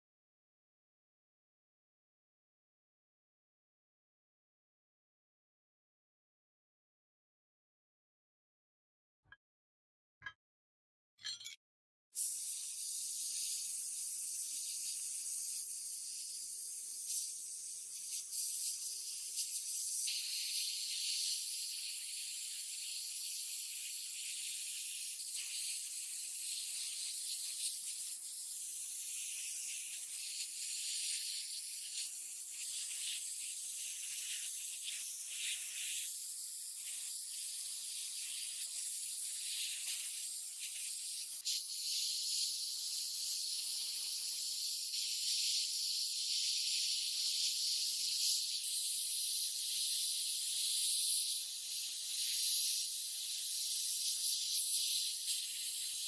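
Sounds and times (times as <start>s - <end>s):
sandblaster gun hissing: 12.2s - 23.1s, 23.8s - 56.0s.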